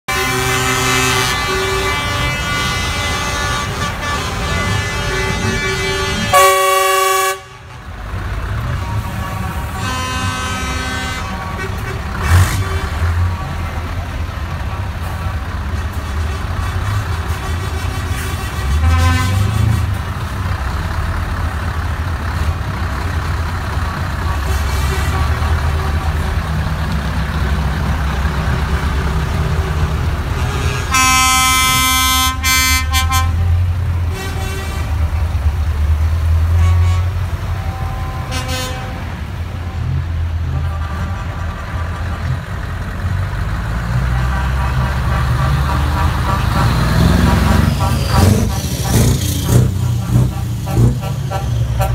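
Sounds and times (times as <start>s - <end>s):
diesel lorry engines rumbling: 0.0s - 51.9s
air horn blast: 0.1s - 7.8s, 8.8s - 13.4s, 15.8s - 20.1s, 29.5s - 35.1s, 36.5s - 39.8s, 47.5s - 51.9s
short horn toots: 0.1s - 7.8s, 15.8s - 20.0s, 30.3s - 33.5s.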